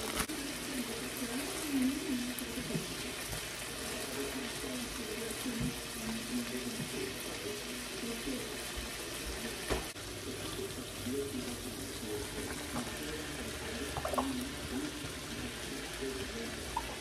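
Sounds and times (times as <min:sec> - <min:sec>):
food sizzling in a skillet: 0:00.0 - 0:17.0.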